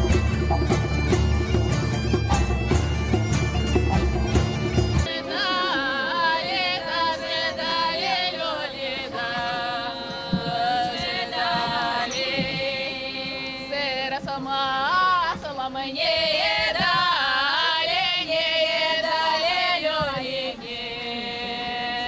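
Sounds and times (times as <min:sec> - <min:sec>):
bagpipe playing: 0:00.0 - 0:09.7
women singing folk song: 0:05.0 - 0:22.0.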